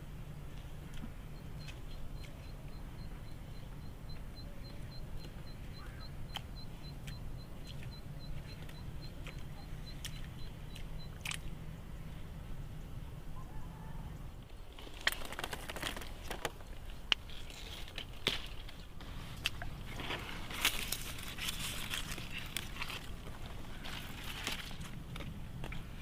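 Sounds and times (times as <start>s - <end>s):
low steady rumble: 0.0s - 26.0s
stems snapping and leaves rustling: 14.7s - 25.9s.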